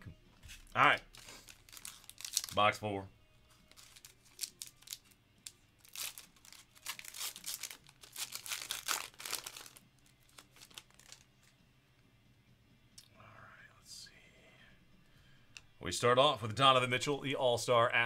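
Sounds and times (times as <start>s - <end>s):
foil wrapper tearing and crinkling: 1.0s - 2.7s, 3.7s - 5.2s, 5.8s - 11.3s.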